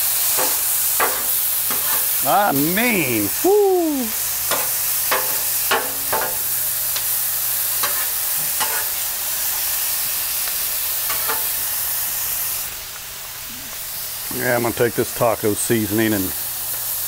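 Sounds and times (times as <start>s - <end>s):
vegetables sizzling on a griddle: 0.0s - 17.0s
metal spatula scraping griddle: 0.2s - 2.2s, 4.5s - 6.6s, 7.8s - 9.0s, 11.1s - 11.6s.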